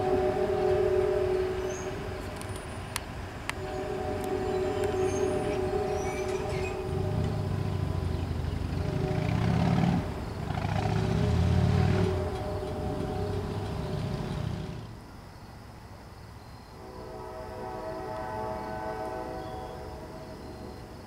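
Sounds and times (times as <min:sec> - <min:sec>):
low rumbling engine: 0:00.0 - 0:15.1
train humming held tones: 0:00.0 - 0:15.1, 0:16.7 - 0:21.0
bird chirps: 0:04.4 - 0:09.1.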